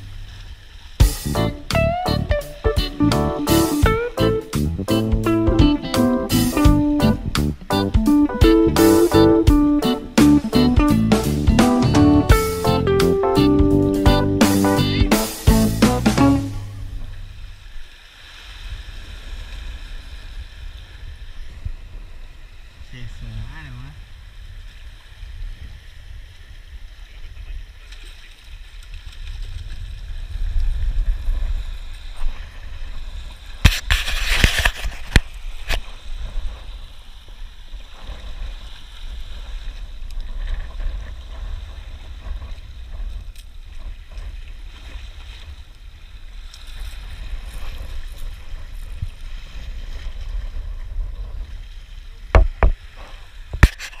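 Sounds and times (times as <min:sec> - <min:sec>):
steady low rumble: 0:00.0 - 0:17.8
sharp knocks: 0:52.4 - 0:52.8.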